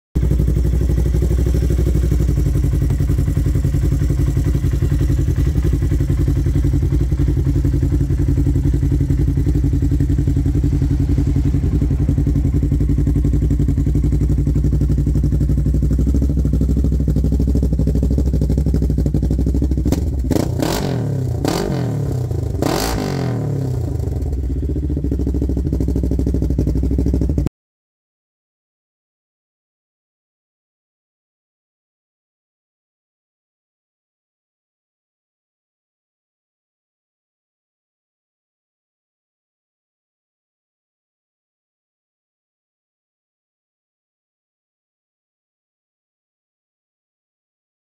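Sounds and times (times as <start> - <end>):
off-road vehicle engine idling and revving: 0.2 - 27.5.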